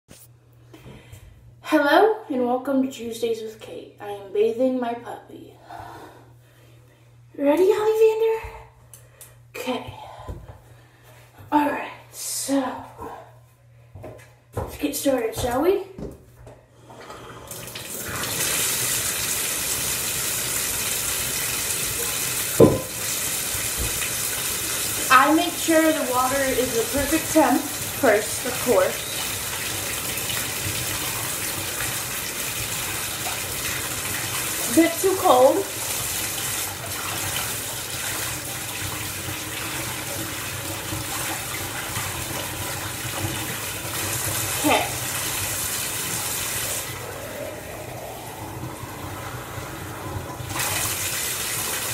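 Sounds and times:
faucet water running: 0:16.8 - 0:51.9.

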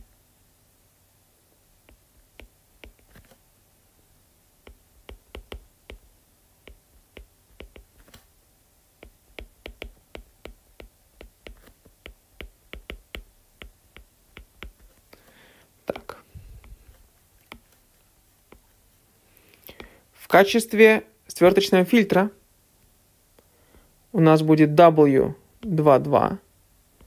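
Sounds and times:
stylus tapping on tablet screen: 0:01.8 - 0:03.4, 0:04.6 - 0:08.2, 0:09.0 - 0:15.0, 0:15.9 - 0:17.8.

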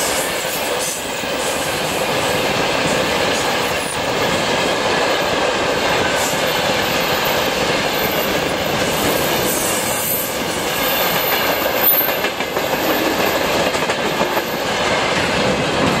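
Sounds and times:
freight train rumbling and rattling: 0:00.0 - 0:16.0.

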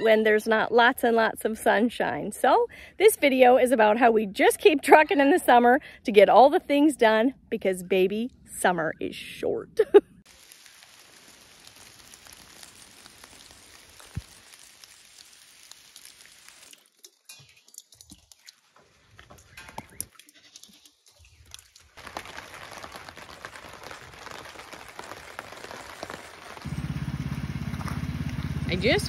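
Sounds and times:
rain hiss: 0:10.3 - 0:16.9, 0:22.0 - 0:29.0.

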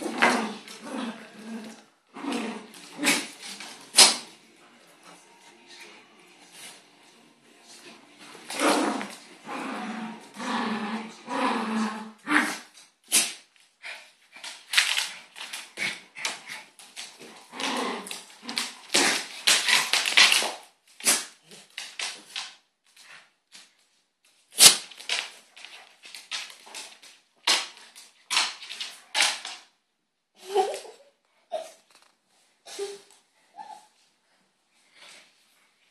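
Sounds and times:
dogs growling: 0:00.0 - 0:04.3, 0:08.4 - 0:12.7, 0:15.6 - 0:20.0.

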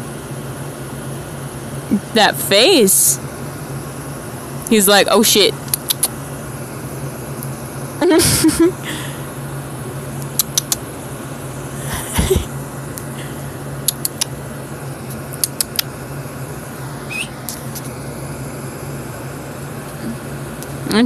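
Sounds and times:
air conditioner humming: 0:00.0 - 0:21.0
sharp clicks: 0:05.6 - 0:06.2, 0:10.2 - 0:10.8, 0:13.8 - 0:14.4, 0:15.3 - 0:15.9.

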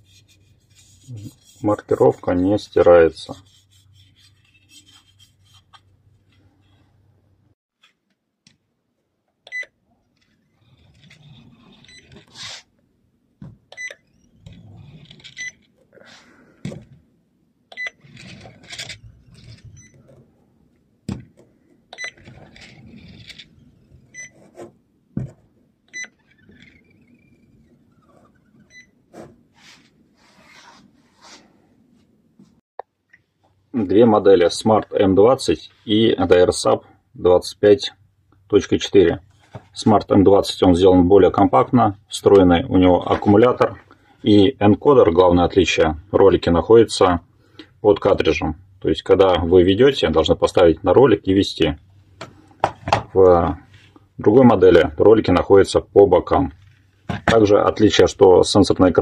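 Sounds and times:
printer rollers rubbing on tile: 0:10.3 - 0:12.7, 0:14.3 - 0:15.6, 0:18.0 - 0:20.1, 0:22.2 - 0:24.7.

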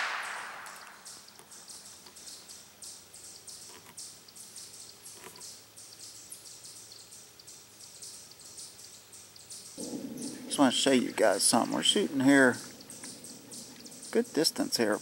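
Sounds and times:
rifle shot: 0:00.0 - 0:01.1, 0:09.8 - 0:10.5
faint high-pitched chirping: 0:00.2 - 0:15.0.

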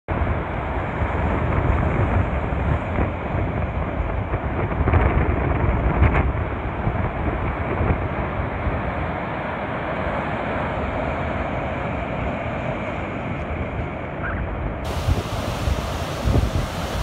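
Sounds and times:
wind buffeting microphone: 0:00.1 - 0:09.2, 0:12.1 - 0:17.0
surf crashing against sea wall: 0:14.8 - 0:17.0.

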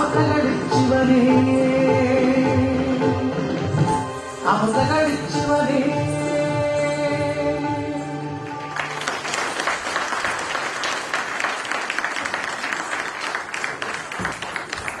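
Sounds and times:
dance music: 0:00.0 - 0:09.0
audience applause: 0:08.5 - 0:15.0.

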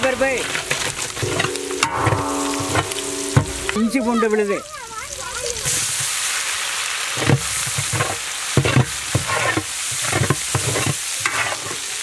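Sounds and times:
ladle stirring and scraping pot: 0:00.0 - 0:03.5, 0:07.2 - 0:12.0
paste sizzling in hot oil: 0:00.0 - 0:12.0.

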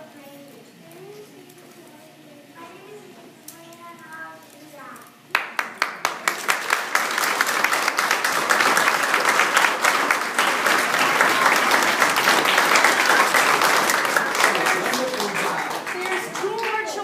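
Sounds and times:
audience applauding: 0:05.3 - 0:17.0.

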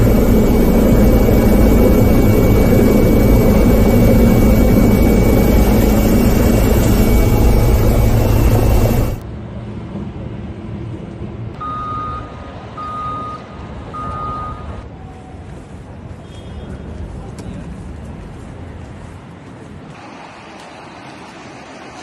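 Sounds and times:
helicopter engine and rotor: 0:00.0 - 0:09.2
reversing alarm beeping: 0:00.0 - 0:09.2, 0:11.6 - 0:14.8
outdoor ambience: 0:00.0 - 0:22.0.

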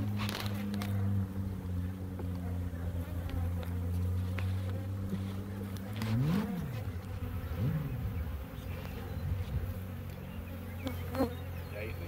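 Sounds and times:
honey bees buzzing: 0:00.0 - 0:12.0.

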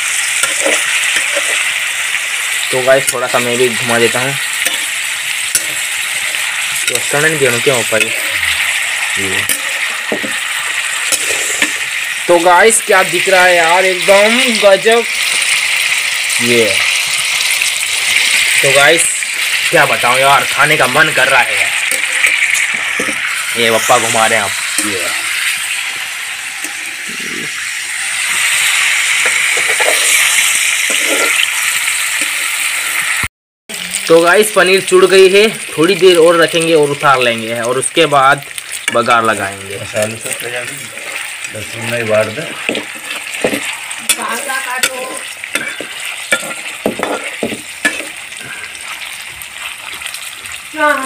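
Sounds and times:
cheese sizzling in hot oil: 0:00.0 - 0:51.0
ladle scraping metal pan: 0:00.4 - 0:01.7, 0:04.5 - 0:12.0, 0:21.2 - 0:25.8, 0:28.0 - 0:31.5, 0:42.2 - 0:48.6
spatula moving through food: 0:00.4 - 0:01.8, 0:04.0 - 0:12.0, 0:27.9 - 0:31.6, 0:40.0 - 0:50.6.

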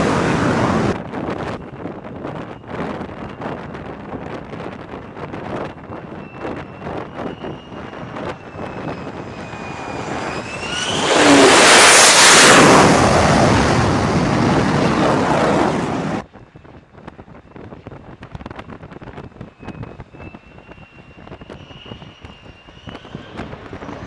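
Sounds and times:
fighter jet roaring past: 0:00.0 - 0:01.0, 0:06.0 - 0:16.2
jet engine whine: 0:00.0 - 0:24.0.

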